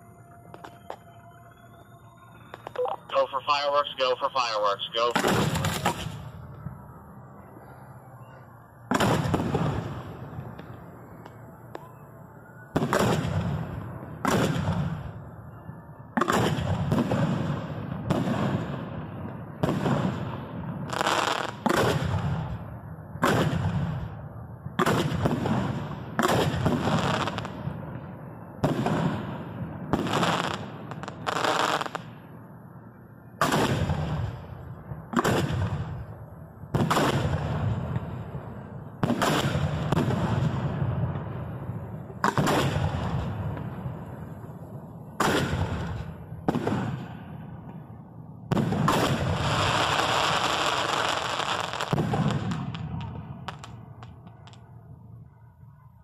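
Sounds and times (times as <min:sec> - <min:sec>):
firework booms: 0:05.1 - 0:06.4, 0:08.9 - 0:11.2, 0:12.7 - 0:15.2, 0:16.2 - 0:32.2, 0:33.4 - 0:54.6.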